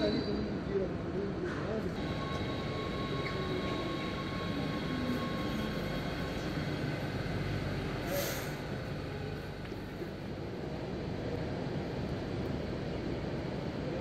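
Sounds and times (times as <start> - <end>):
train rumbling past: 1.3 - 14.0
short hiss: 8.0 - 8.7.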